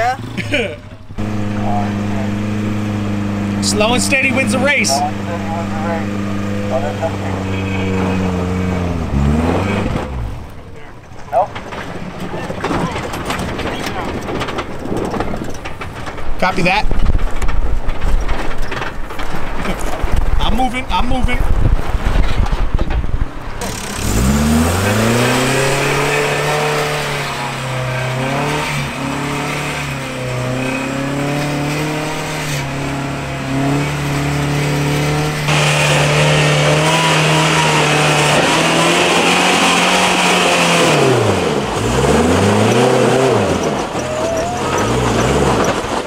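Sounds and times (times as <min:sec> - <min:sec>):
truck engine revving hard: 0:00.0 - 0:10.7, 0:23.5 - 0:46.0.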